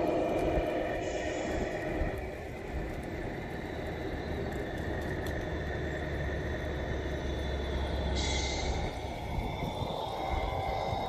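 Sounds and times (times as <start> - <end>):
toy truck rolling on asphalt: 0.0 - 11.0.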